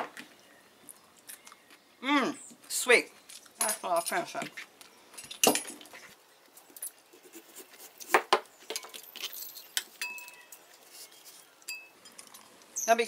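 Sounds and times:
kitchen utensils clinking: 8.7 - 10.6.

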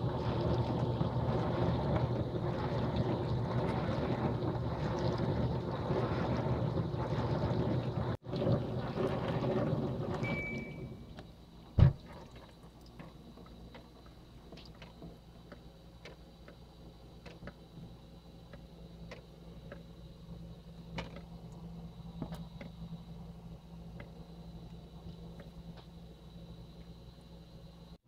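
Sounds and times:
water spraying in dishwasher: 0.0 - 16.2
dishwasher humming: 0.0 - 28.0
short beep: 10.2 - 11.0.

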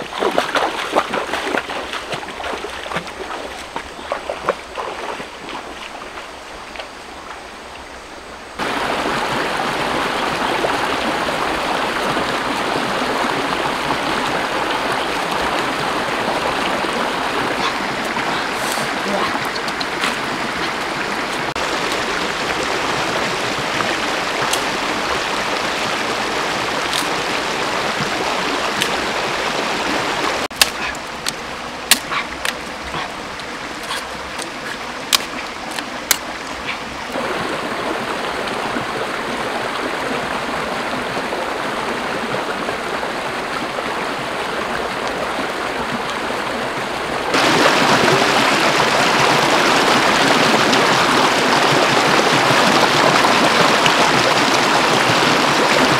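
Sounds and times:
stream running over stones: 0.0 - 55.9.

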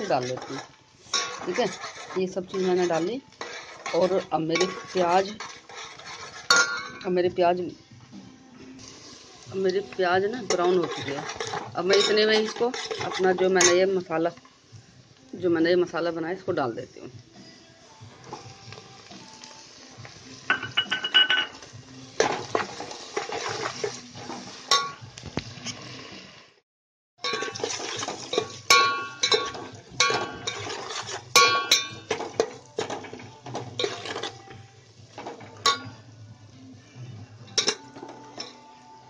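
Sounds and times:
steel spoon clinking on pot: 0.0 - 7.0, 10.4 - 13.8, 20.5 - 21.6, 24.7 - 25.0, 27.2 - 34.4, 35.2 - 36.0, 37.5 - 38.7.

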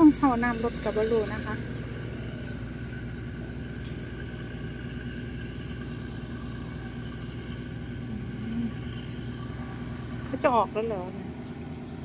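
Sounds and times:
boat engine droning: 0.0 - 12.0.

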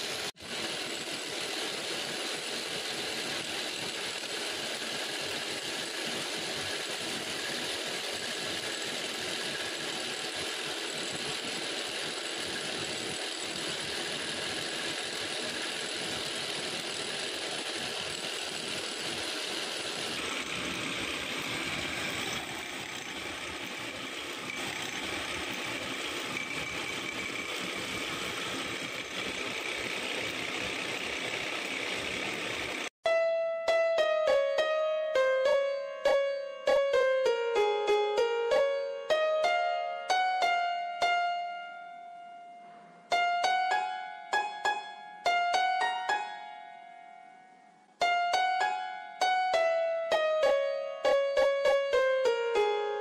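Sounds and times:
wood lathe running: 0.0 - 33.0.

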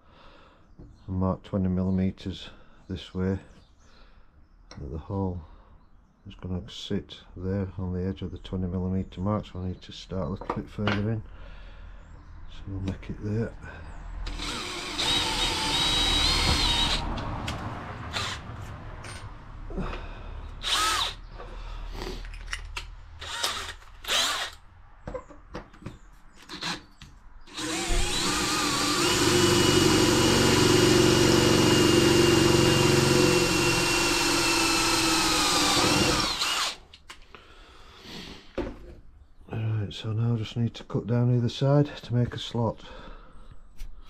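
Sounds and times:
cordless drill boring metal: 14.2 - 17.1, 18.1 - 18.4, 20.6 - 21.2, 23.2 - 24.6, 27.5 - 36.8.

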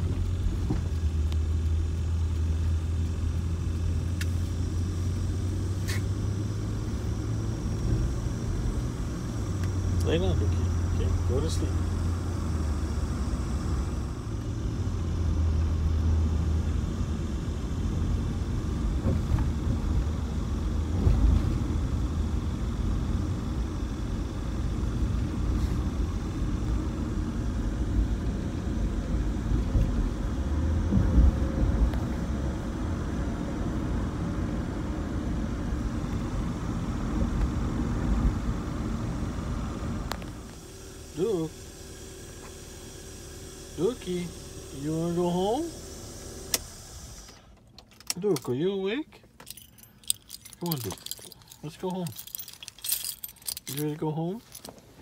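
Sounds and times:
car cabin road rumble: 0.0 - 41.6, 43.8 - 55.0.

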